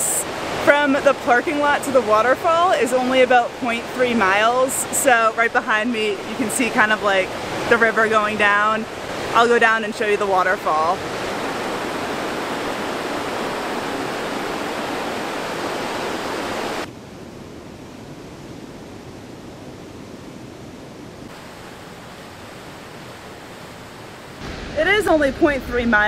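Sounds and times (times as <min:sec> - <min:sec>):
river rushing over rocks: 0:05.0 - 0:16.9.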